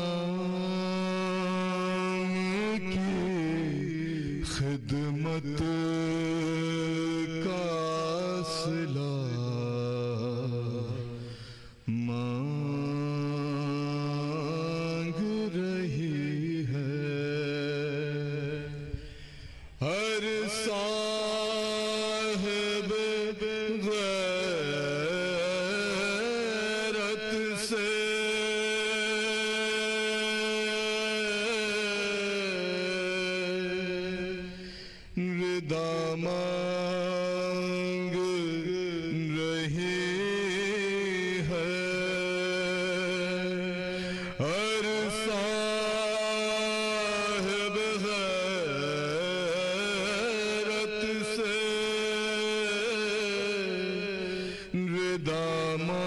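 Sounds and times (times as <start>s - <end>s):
man chanting elegy: 0.0s - 11.3s, 11.9s - 18.9s, 19.8s - 34.6s, 35.2s - 56.0s
man singing unaccompanied lament: 0.0s - 56.0s.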